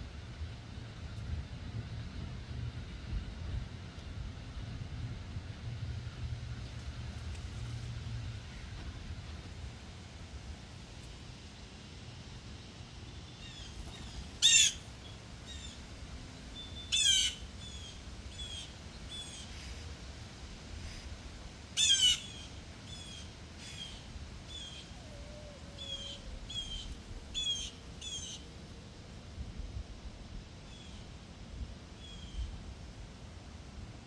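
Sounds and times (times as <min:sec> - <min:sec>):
blue jay calls: 0:13.3 - 0:15.8, 0:16.6 - 0:19.7, 0:21.8 - 0:28.5.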